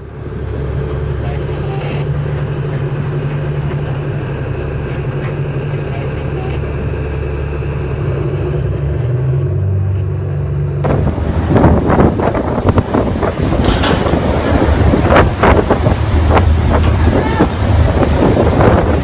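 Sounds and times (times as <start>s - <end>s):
sea water washing across deck: 0.0s - 8.3s, 10.8s - 19.0s
diesel engine running: 0.0s - 19.0s
wind and sea noise: 0.0s - 19.0s
wind buffeting microphone: 10.8s - 19.0s.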